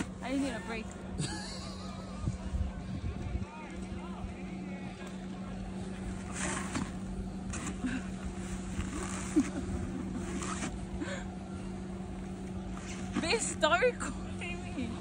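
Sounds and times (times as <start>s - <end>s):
scraping and rustling in snow: 0.0s - 0.9s, 6.1s - 10.8s, 12.7s - 13.6s
low mechanical hum: 0.0s - 15.0s.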